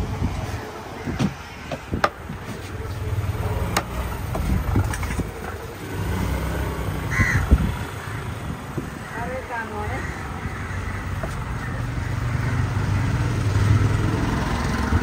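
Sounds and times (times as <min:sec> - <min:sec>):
cleaver chopping on wooden block: 0:01.2 - 0:02.2, 0:03.7 - 0:04.5
crow cawing: 0:07.1 - 0:13.4.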